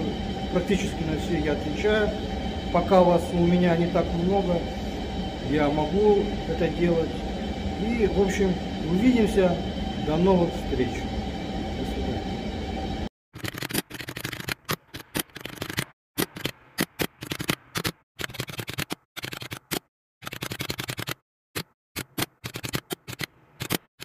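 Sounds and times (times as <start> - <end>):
room hum: 0.0 - 13.1.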